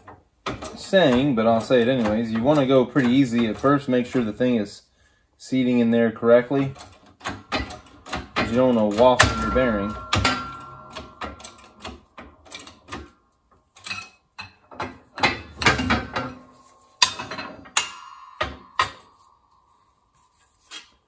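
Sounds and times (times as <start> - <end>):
sharp metal knocks: 7.2 - 13.2, 13.8 - 19.5.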